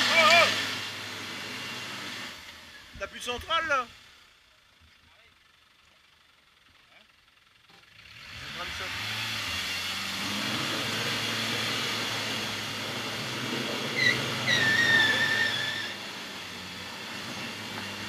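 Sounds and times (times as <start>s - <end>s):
car engine running at low speed: 0.0s - 18.0s
high wavering squeal: 13.9s - 16.1s.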